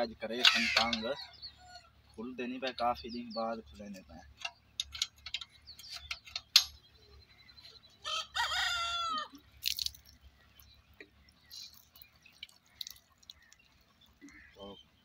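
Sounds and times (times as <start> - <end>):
rooster crowing: 8.0 - 9.4.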